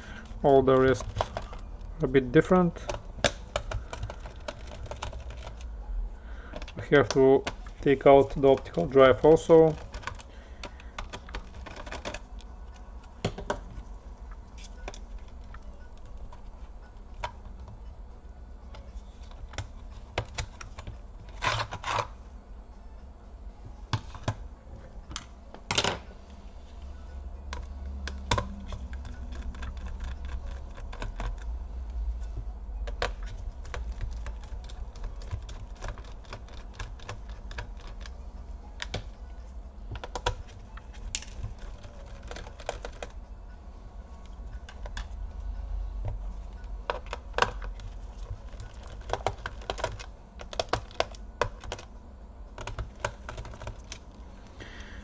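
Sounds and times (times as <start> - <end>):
low steady hum: 0.0 - 55.0
plastic laptop case handled: 0.2 - 1.8, 2.4 - 5.7, 6.6 - 12.3, 13.1 - 13.8, 18.8 - 22.1, 32.8 - 38.2, 39.9 - 43.2, 46.0 - 51.9, 52.5 - 54.1.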